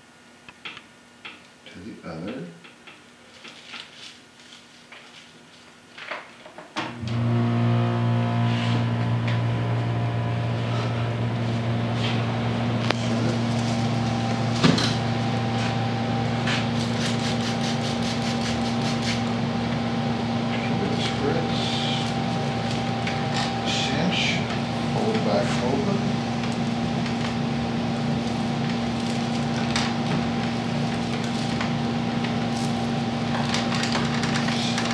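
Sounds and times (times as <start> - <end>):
rustling and crackling stalks: 3.3 - 5.9, 10.5 - 19.4, 26.4 - 34.9
electric machine hum: 6.8 - 34.9.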